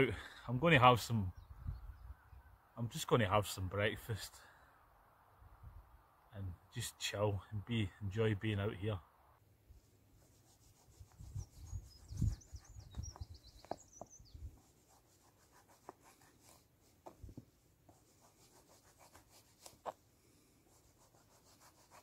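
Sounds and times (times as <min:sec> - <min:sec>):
bird singing: 0:00.9 - 0:02.8, 0:11.4 - 0:14.6.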